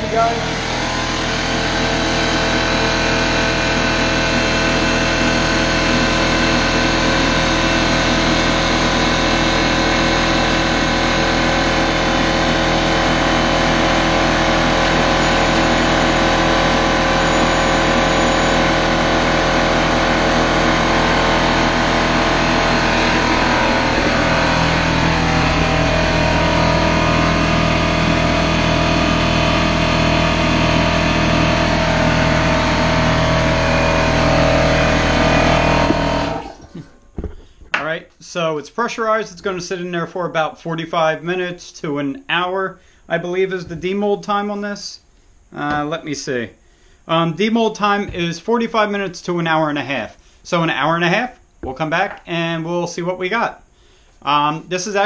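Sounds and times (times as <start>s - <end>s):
low pulsing: 0.0s - 37.2s
air compressor running: 0.0s - 37.8s, 42.7s - 50.5s, 53.6s - 55.0s.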